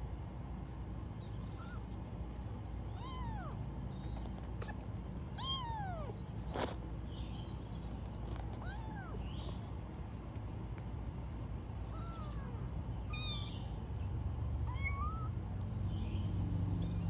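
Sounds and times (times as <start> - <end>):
steady low background noise: 0.0 - 17.0
kittens meowing: 1.4 - 2.0, 2.7 - 6.7, 8.2 - 9.5, 11.8 - 15.6.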